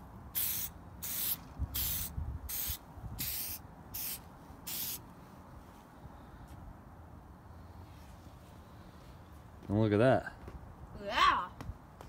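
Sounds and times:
aerosol spray can hissing: 0.4 - 5.0.

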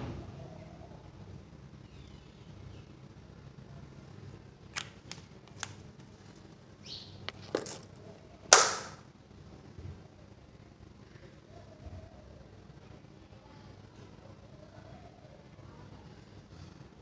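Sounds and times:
loud sharp click: 8.5 - 9.0.

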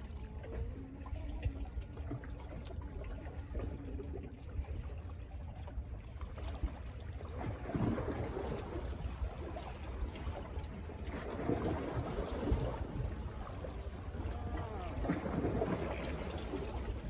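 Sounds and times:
low steady rumble: 0.0 - 17.0
water lapping against rocks: 0.0 - 17.0
water splash: 6.2 - 17.0.

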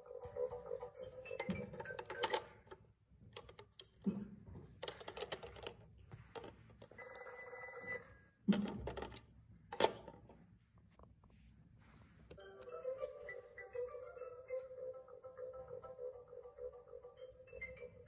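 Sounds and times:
toy telephone electronic ringing: 0.4 - 2.6, 6.9 - 8.2, 12.4 - 18.0.

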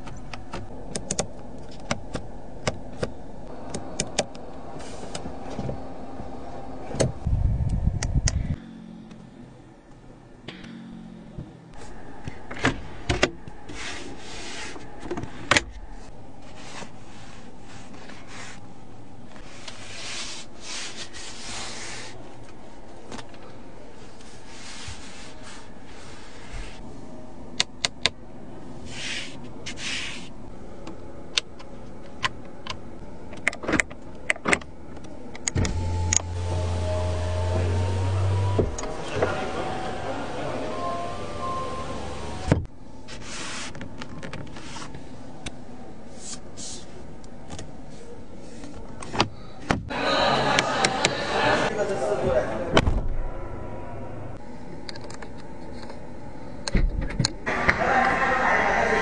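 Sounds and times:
electric seat motor whirring: 35.6 - 42.6.

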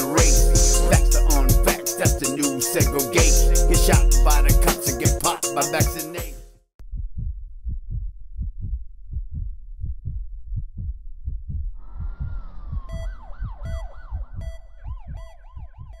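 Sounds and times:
thumping bass pulse: 0.2 - 5.2, 6.8 - 16.0
wailing siren-like synth tone: 12.5 - 16.0.

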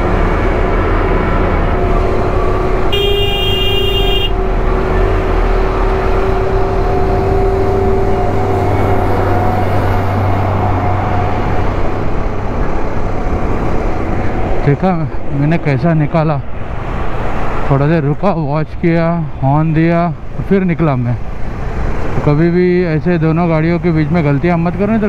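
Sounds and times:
droning traffic: 0.0 - 25.0
road and wind noise: 0.0 - 25.0
motorcycle horn: 2.9 - 4.4.

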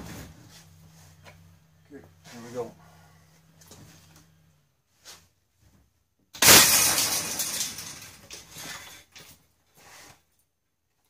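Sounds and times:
cable snapping with loud bang: 6.4 - 8.4.

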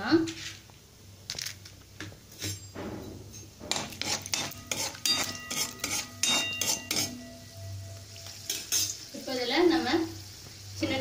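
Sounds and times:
metal spoon scraping metal pan: 2.3 - 9.1.

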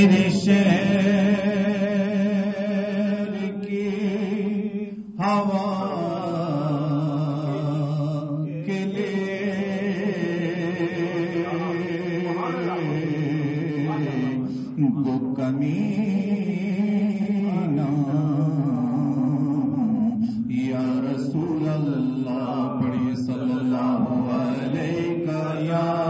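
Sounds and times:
man singing unaccompanied: 0.0 - 26.0.

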